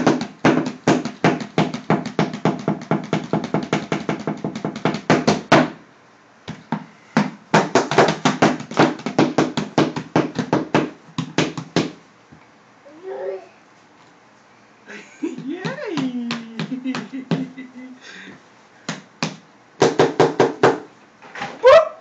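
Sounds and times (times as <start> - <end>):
drumming on cardboard box: 0.0 - 5.8, 6.5 - 12.0, 15.2 - 17.8, 18.9 - 20.9.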